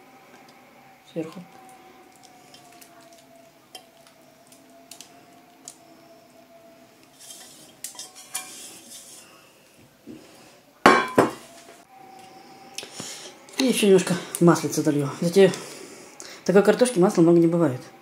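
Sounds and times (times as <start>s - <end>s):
faint steady hum: 0.0s - 18.0s
kitchenware clattering knocks: 10.9s - 11.4s.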